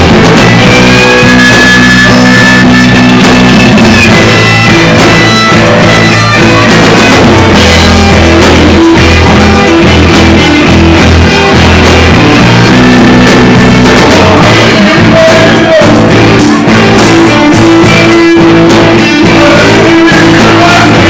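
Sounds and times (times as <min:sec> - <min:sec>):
blues band playing: 0:00.0 - 0:21.0
electric guitar: 0:00.0 - 0:21.0.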